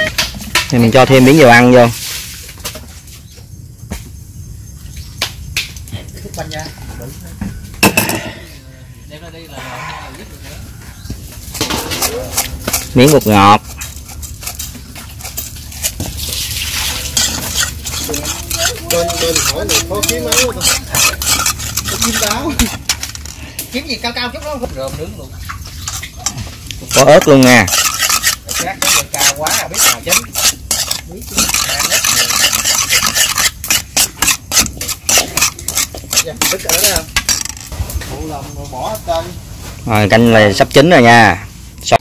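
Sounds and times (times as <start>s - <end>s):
spoon stirring and scraping a bowl: 11.4s - 23.7s, 25.3s - 38.1s.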